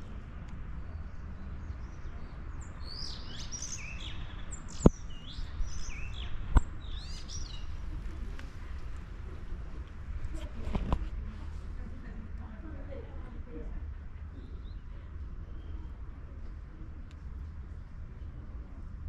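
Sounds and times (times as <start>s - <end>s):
songbird singing: 0.0s - 11.0s, 14.2s - 16.3s
low outdoor rumble: 0.0s - 19.0s.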